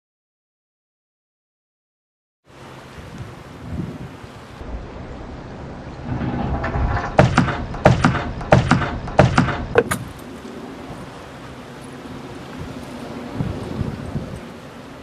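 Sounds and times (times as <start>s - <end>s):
wind on microphone: 2.9s - 11.2s, 12.0s - 15.0s
sharp clattering knocks: 6.0s - 10.0s.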